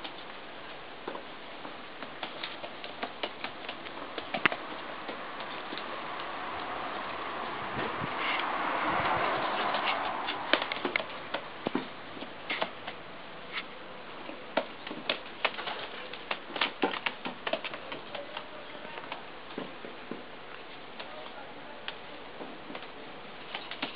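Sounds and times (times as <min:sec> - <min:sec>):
pigeon flapping wings: 0:02.0 - 0:06.8, 0:09.1 - 0:11.8, 0:14.6 - 0:19.2, 0:23.5 - 0:23.9
pigeon pecking on metal: 0:02.0 - 0:07.2, 0:14.2 - 0:19.7.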